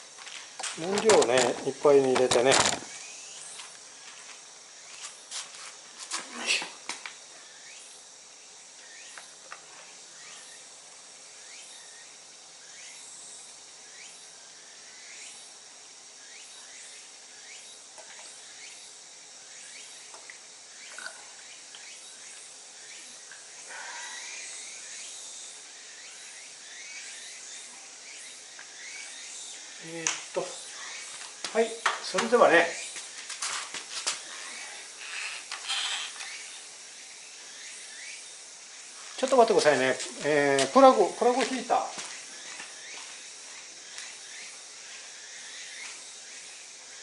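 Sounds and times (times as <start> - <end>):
steady high hiss: 0.0 - 47.0.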